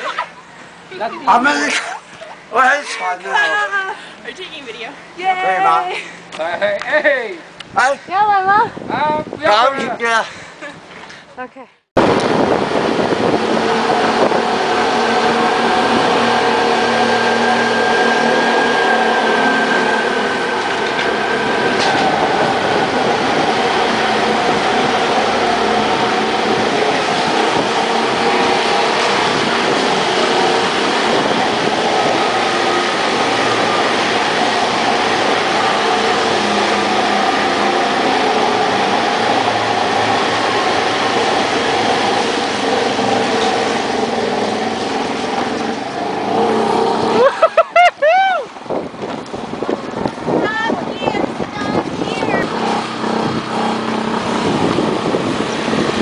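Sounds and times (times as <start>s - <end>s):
tyre and road noise: 12.0s - 56.0s.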